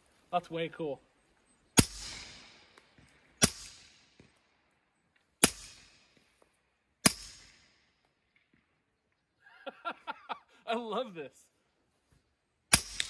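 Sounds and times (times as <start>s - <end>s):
suppressed pistol shots: 1.8s - 2.8s, 3.4s - 4.2s, 5.4s - 6.2s, 7.0s - 7.8s, 12.7s - 13.0s.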